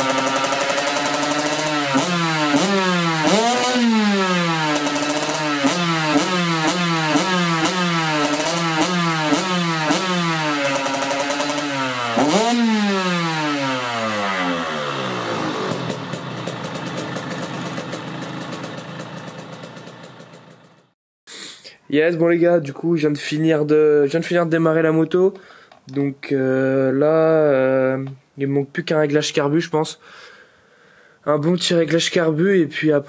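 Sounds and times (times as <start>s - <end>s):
dirt bike engine revving and idling: 0.0s - 21.0s.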